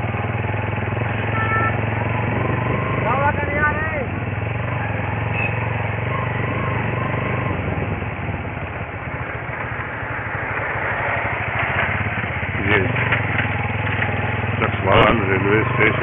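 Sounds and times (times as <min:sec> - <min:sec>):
small engine running: 0:00.0 - 0:08.0, 0:09.2 - 0:16.0
rushing noise: 0:08.6 - 0:14.2.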